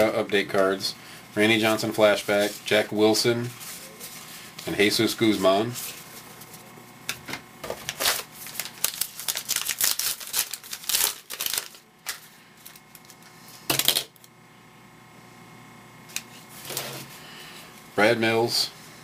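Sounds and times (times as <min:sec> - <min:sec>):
cards being handled: 0:07.7 - 0:13.8
wrapper crinkling being torn: 0:07.7 - 0:14.3.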